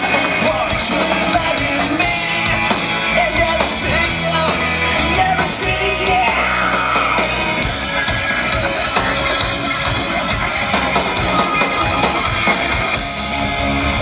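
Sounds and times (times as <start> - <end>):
person singing through pa: 0.0 - 7.3
bass guitar: 0.0 - 14.0
drum kit: 0.0 - 14.0
electric guitar: 0.0 - 14.0.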